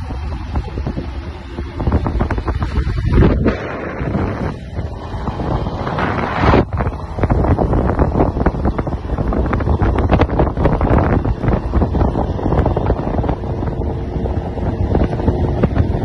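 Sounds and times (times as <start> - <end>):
road and vehicle noise: 0.0 - 16.0
wind buffeting microphone: 0.0 - 16.0.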